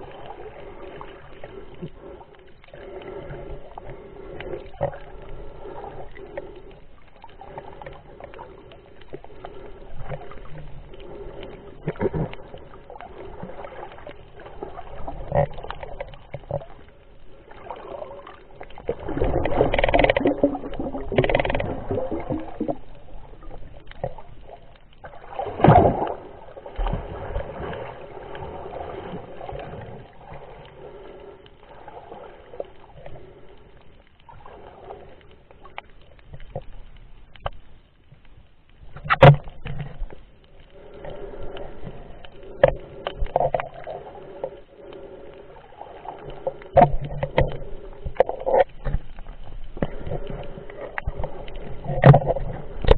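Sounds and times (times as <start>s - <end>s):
muffled underwater water sloshing: 0.0s - 52.9s.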